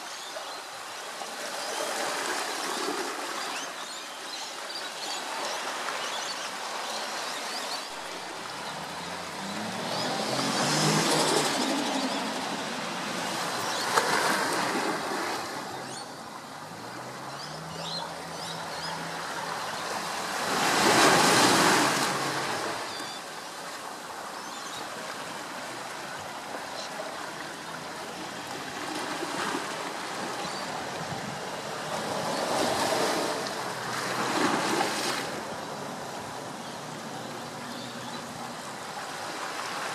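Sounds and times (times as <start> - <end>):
rushing outdoor noise: 0.0 - 39.9.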